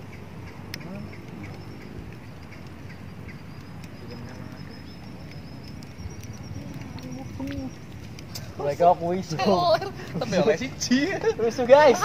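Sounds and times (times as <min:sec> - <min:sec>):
faint bird calls: 0:00.0 - 0:08.6.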